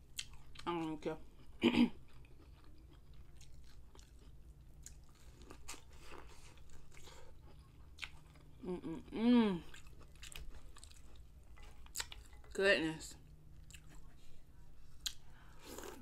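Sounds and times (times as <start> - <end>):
chewing corn on the cob: 1.4 - 8.8, 9.6 - 12.4
person humming: 8.6 - 9.7.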